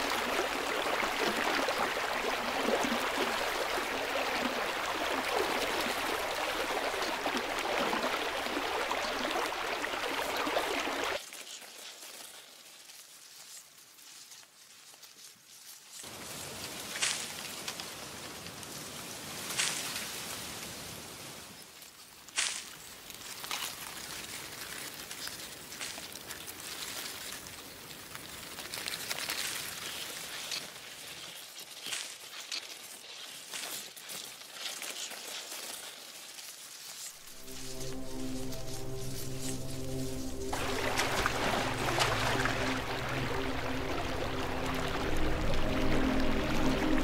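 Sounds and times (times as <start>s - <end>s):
stream rushing over boulders: 0.0s - 11.2s, 37.1s - 47.0s
footsteps on dry leaves: 28.8s - 47.0s.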